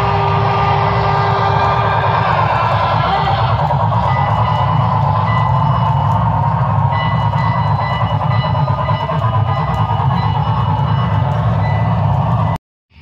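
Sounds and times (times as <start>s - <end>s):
model train cars rolling rumble: 0.0s - 12.6s.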